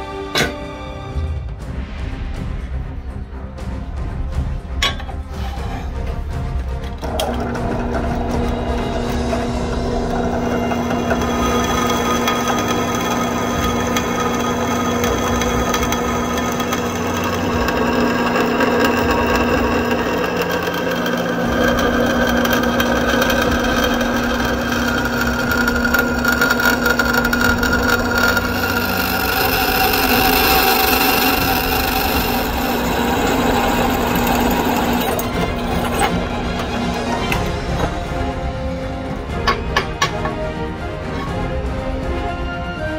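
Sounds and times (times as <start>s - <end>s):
drill press motor hum: 6.8s - 38.7s
drill bit boring through steel: 7.0s - 38.4s.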